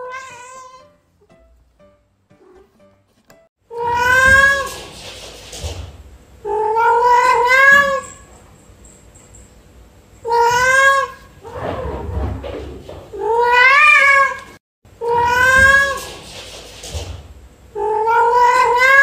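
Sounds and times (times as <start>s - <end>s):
cat meowing: 0.0s - 0.8s, 3.7s - 4.8s, 6.5s - 8.2s, 10.2s - 11.4s, 13.2s - 16.1s, 17.8s - 19.0s.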